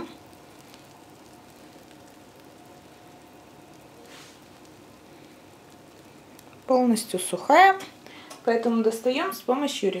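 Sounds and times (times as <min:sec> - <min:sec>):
faint background hiss: 0:00.0 - 0:10.0
faint steady hum: 0:00.0 - 0:10.0
soft rustle: 0:04.0 - 0:04.7.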